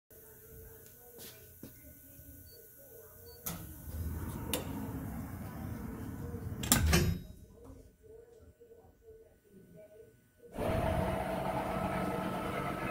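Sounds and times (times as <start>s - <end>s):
machine low rumble: 3.8s - 6.6s, 10.6s - 12.9s.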